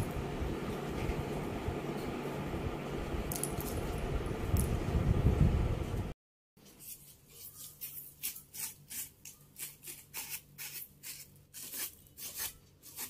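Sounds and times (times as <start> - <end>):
broom sweeping tile floor: 6.6 - 13.0.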